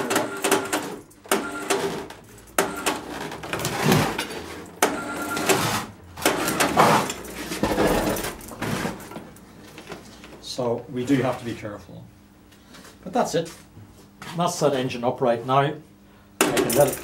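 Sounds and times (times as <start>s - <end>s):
overhead hoist running: 0.0s - 9.3s.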